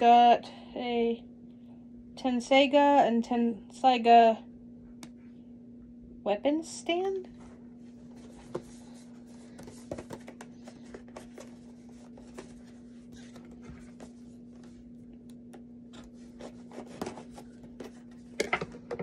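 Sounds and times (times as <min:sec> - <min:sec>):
steady low hum: 0:00.0 - 0:19.0
packaging scratches and rubs: 0:16.0 - 0:18.2.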